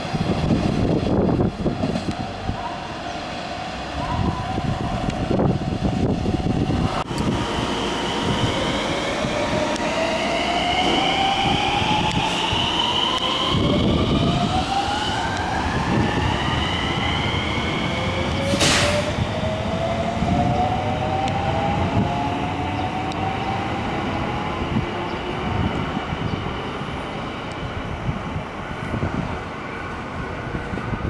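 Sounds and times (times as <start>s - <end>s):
wheels rumbling on rail: 0.0s - 31.0s
train motor whine rising: 4.9s - 25.0s.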